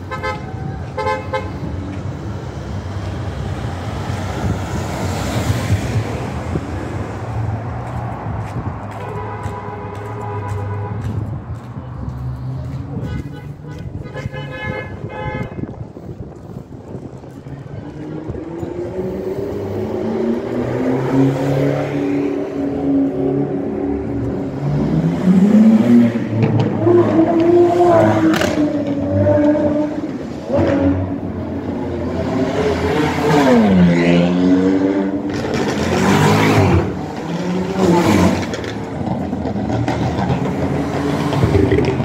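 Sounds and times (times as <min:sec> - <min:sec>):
sports cars revving past: 0:17.8 - 0:42.0.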